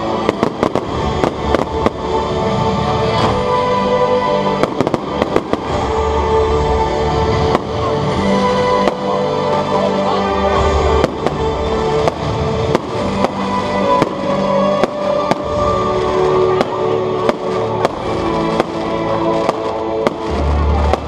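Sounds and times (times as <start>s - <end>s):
loud music with held notes: 0.0s - 21.0s.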